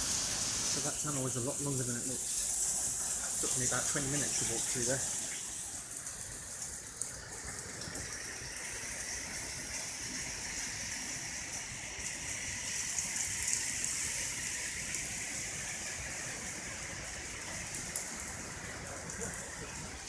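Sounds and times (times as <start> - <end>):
hiss of water: 0.0 - 20.0.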